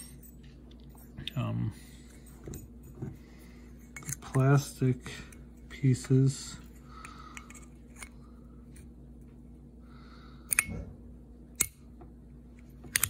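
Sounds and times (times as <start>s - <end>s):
faint low hum: 0.0s - 13.0s
circuit breaker parts clicking: 11.6s - 11.8s.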